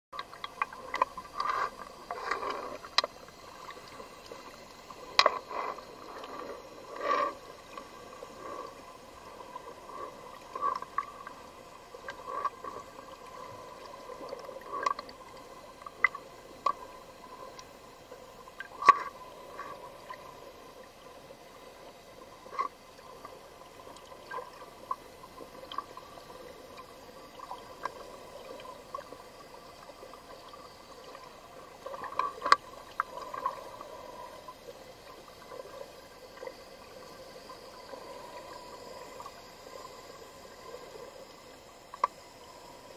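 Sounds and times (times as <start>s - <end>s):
sharp underwater clicks: 0.2s - 8.8s, 12.0s - 17.7s, 18.5s - 20.2s, 22.4s - 25.0s, 31.2s - 34.2s, 41.9s - 42.2s
underwater gurgling wash: 0.2s - 42.9s.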